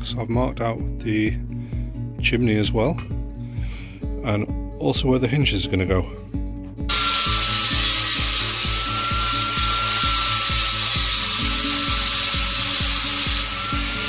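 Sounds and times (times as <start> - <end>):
background music with beat: 0.0 - 14.0
angle grinder cutting steel: 6.9 - 14.0.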